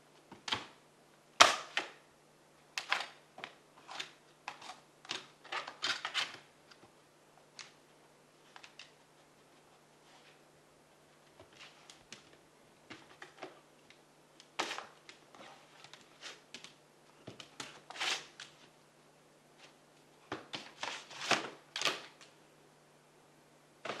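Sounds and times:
faint low hum: 0:00.0 - 0:24.0.

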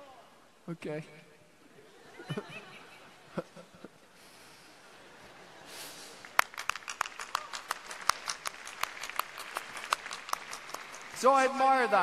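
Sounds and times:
person clapping hands: 0:06.1 - 0:11.5.

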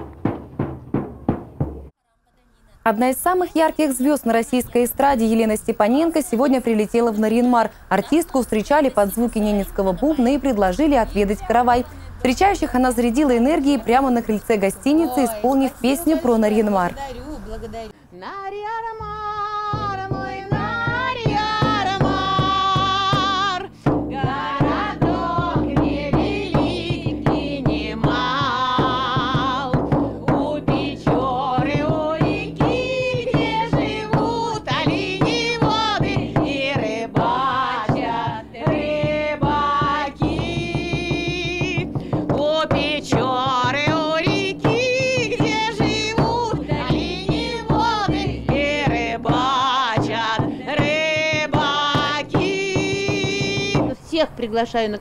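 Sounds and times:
drum beat: 0:00.0 - 0:01.9, 0:04.6 - 0:17.0, 0:19.0 - 0:54.0
woman singing: 0:02.9 - 0:54.3.

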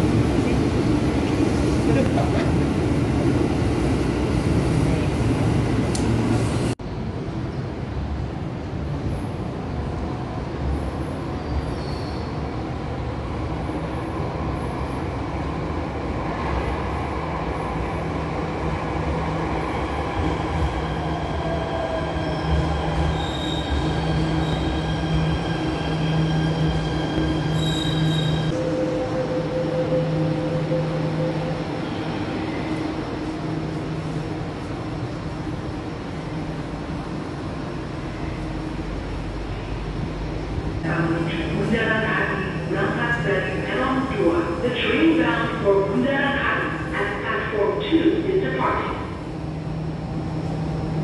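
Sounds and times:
electric train passing: 0:12.4 - 0:51.0
low station drone: 0:23.9 - 0:51.0.

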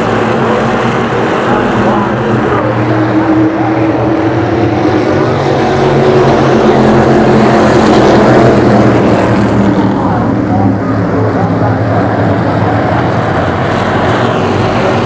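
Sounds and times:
race car engines droning: 0:00.0 - 0:15.0.

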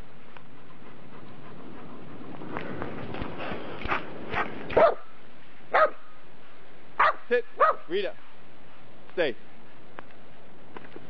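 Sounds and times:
dog panting: 0:00.2 - 0:03.8.

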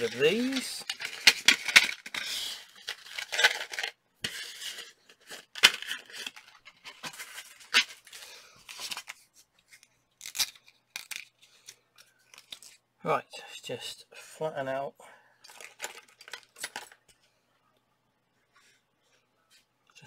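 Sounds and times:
papery rustling: 0:00.0 - 0:10.0
blister packs cracking and snapping: 0:10.2 - 0:11.3.

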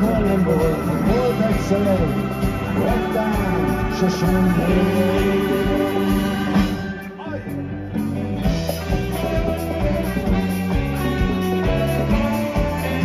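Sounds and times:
person singing: 0:00.0 - 0:07.6
live rock band playing: 0:00.0 - 0:13.0.

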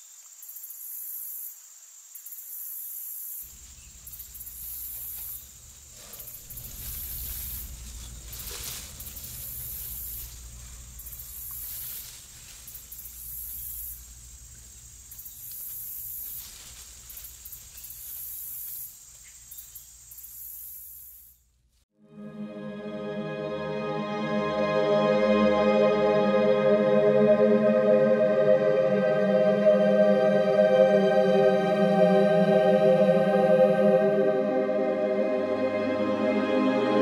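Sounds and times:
insect stridulation: 0:00.0 - 0:21.5
low rumble: 0:05.5 - 0:11.7.

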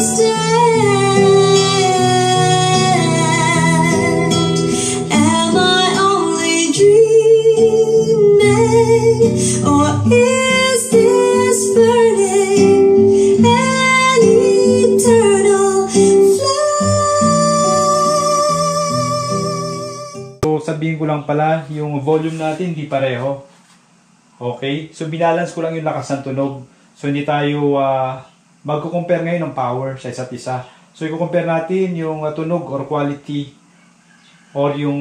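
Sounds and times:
woman singing: 0:00.0 - 0:20.4
acoustic guitar: 0:00.0 - 0:20.6.

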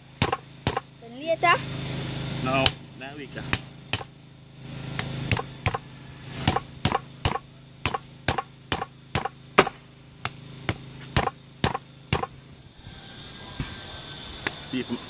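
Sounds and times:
cleaver chopping fish on board: 0:05.3 - 0:05.8, 0:06.5 - 0:12.3.

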